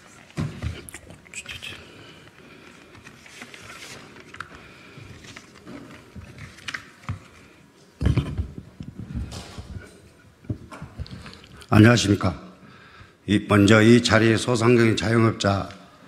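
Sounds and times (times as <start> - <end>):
microphone being handled: 8.0 - 11.5.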